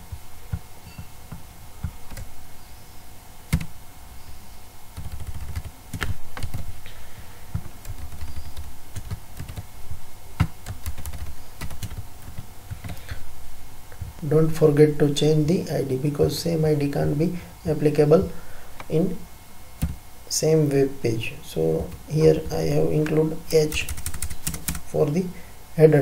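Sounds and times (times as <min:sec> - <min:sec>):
keyboard typing: 0:01.8 - 0:02.3, 0:03.5 - 0:03.7, 0:05.0 - 0:06.7, 0:07.5 - 0:09.7, 0:10.4 - 0:13.0, 0:21.8 - 0:24.9.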